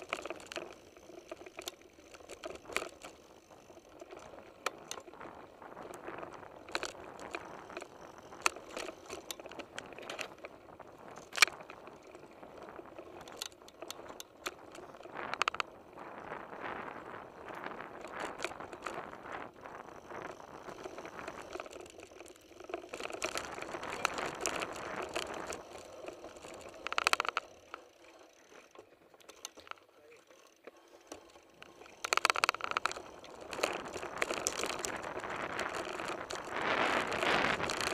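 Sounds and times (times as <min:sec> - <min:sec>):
bike rattling over dirt trail: 0:00.0 - 0:37.9
sharp clicks and knocks: 0:26.4 - 0:27.8, 0:31.1 - 0:34.9.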